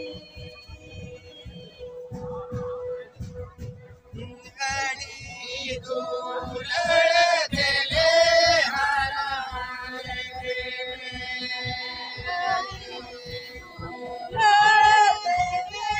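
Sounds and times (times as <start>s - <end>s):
men singing together: 4.4s - 15.9s.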